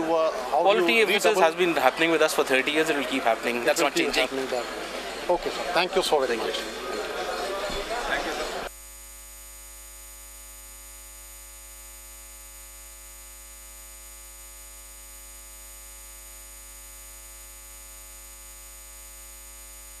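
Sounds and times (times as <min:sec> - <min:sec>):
electrical hum and buzz: 0:07.9 - 0:20.0.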